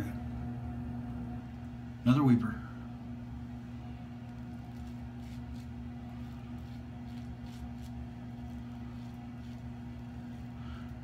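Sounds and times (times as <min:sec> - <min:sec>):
low electrical hum: 0:00.0 - 0:11.0
razor scraping stubble: 0:04.2 - 0:11.0.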